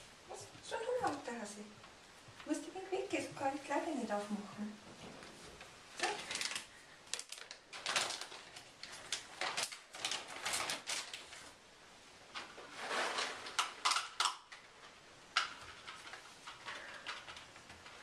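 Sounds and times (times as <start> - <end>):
rustling: 0.0 - 18.0
light clattering of objects: 12.3 - 18.0.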